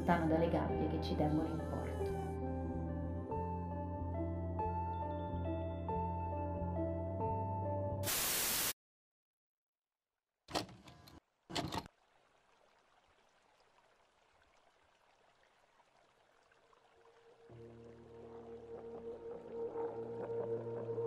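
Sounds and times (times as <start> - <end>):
tape static hiss: 8.1 - 8.7
loading mechanism whir: 10.5 - 11.9
videocassette clunks: 10.5 - 11.9.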